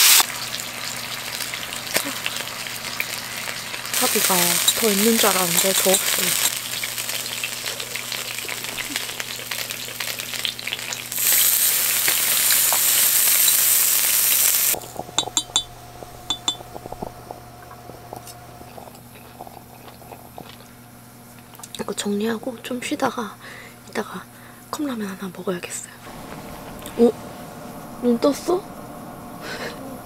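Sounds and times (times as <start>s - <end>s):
beef sizzling on a grill pan: 0.0s - 18.6s
light clinks: 15.0s - 17.1s.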